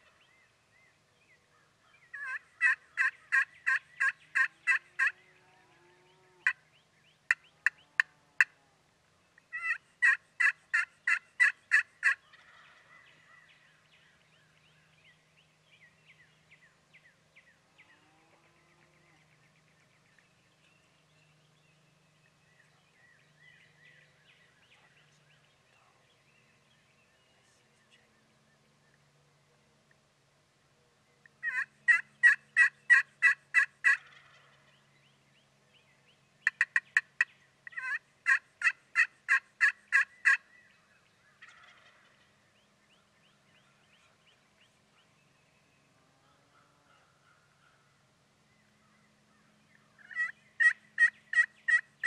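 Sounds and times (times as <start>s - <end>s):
turkey calling: 2.1s - 5.2s, 9.5s - 13.6s, 31.4s - 34.6s, 36.4s - 40.5s, 41.4s - 42.3s, 50.0s - 51.9s.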